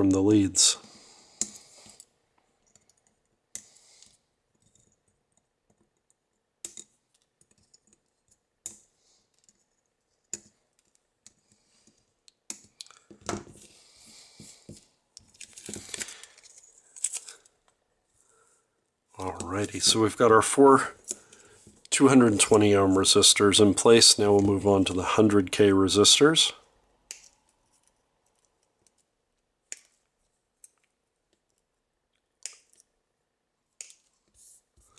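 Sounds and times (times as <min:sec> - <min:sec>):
rustling handling noise: 0:13.0 - 0:18.3.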